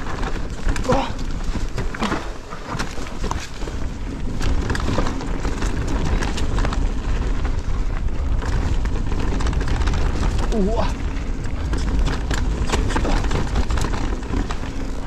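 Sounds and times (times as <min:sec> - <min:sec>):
bike rattling and knocking: 0:00.0 - 0:15.0
tyres crunching on stones: 0:00.0 - 0:15.0
wind buffeting microphone: 0:00.0 - 0:15.0.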